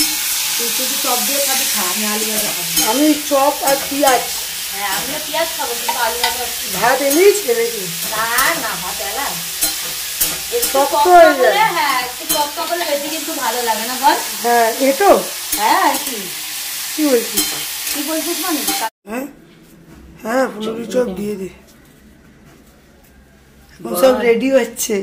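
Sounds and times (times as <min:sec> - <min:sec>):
potatoes sizzling in hot oil: 0:00.0 - 0:18.9.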